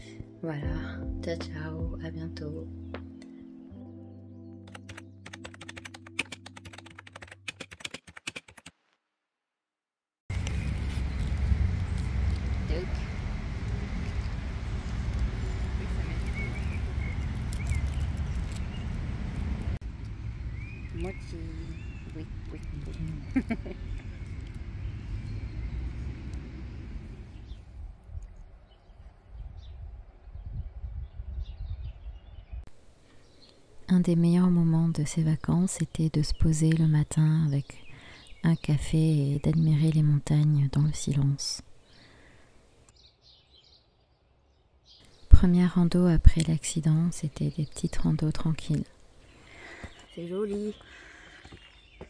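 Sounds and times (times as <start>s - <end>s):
low uneven rumble: 10.3s - 32.6s.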